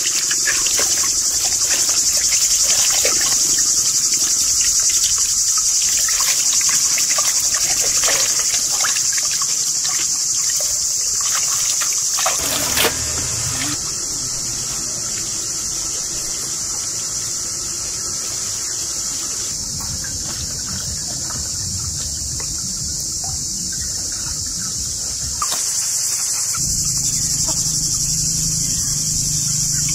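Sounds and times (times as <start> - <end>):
water splashing in metal basin: 0.0 - 13.7
insect chorus: 0.0 - 29.9.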